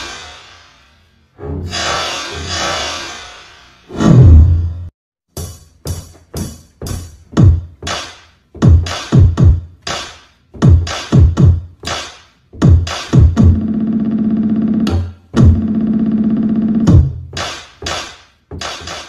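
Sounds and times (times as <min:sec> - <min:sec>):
electronic music with drum-machine beat: 0:05.4 - 0:19.0.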